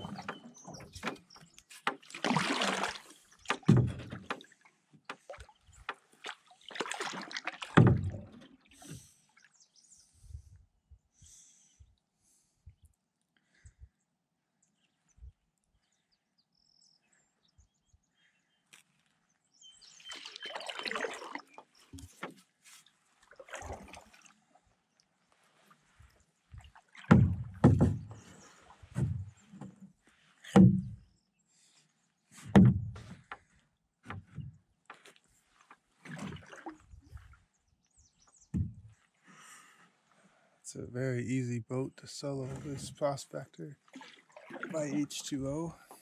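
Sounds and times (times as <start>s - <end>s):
paddle strokes splashing: 0.0s - 9.5s, 19.8s - 31.0s, 31.6s - 37.5s, 42.3s - 46.0s
paddle swish: 43.9s - 45.0s.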